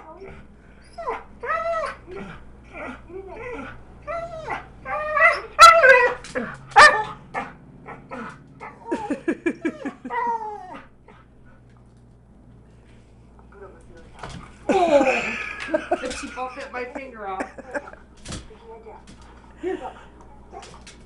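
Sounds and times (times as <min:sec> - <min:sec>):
dog whining and yipping: 0:00.1 - 0:08.9, 0:09.6 - 0:10.9
dog barking: 0:06.8 - 0:08.0.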